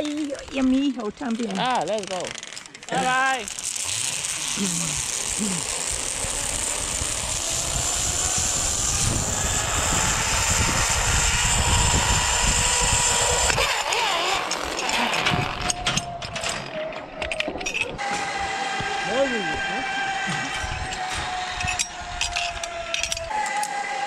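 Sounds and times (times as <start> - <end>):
zipline pulleys whirring on cable: 0.0 - 24.0
wind rushing on microphone: 6.2 - 13.9, 20.6 - 23.3.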